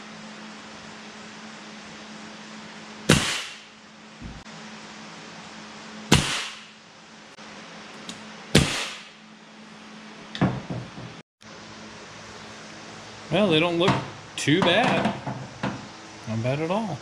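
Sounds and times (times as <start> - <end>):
pneumatic nailer firing: 3.1 - 4.4, 6.1 - 6.8, 8.5 - 9.2.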